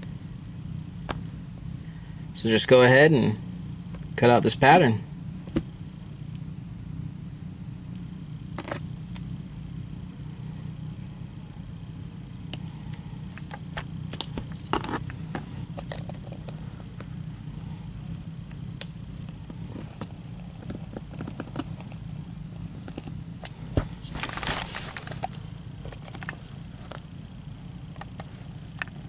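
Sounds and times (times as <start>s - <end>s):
low hum and hiss: 0.0s - 29.0s.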